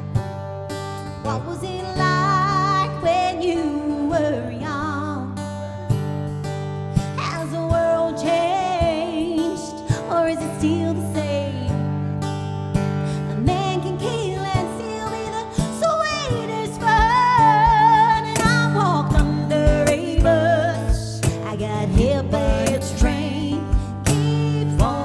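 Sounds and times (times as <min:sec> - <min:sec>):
strummed acoustic guitar: 0:00.0 - 0:25.0
woman singing: 0:01.2 - 0:05.5, 0:07.0 - 0:12.1, 0:13.1 - 0:25.0
cajon beat: 0:16.2 - 0:25.0.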